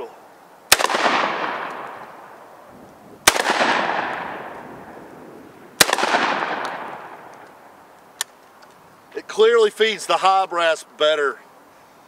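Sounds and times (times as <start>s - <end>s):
shotgun shots: 0.7s - 2.0s, 3.2s - 4.6s, 5.8s - 7.4s
long echo of shots: 0.7s - 2.3s, 3.2s - 5.1s, 5.8s - 7.4s.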